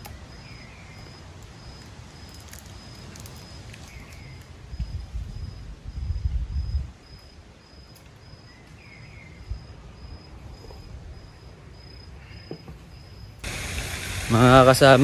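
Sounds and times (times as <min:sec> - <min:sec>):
bird chirp: 0:00.0 - 0:01.2, 0:08.4 - 0:09.6
insect chirping: 0:00.0 - 0:13.6.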